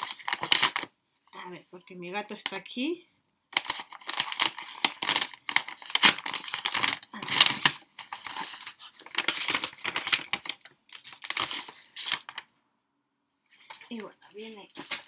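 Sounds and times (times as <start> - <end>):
mailing bag tearing and crinkling: 0.0 - 0.9, 3.6 - 12.4, 14.7 - 15.0.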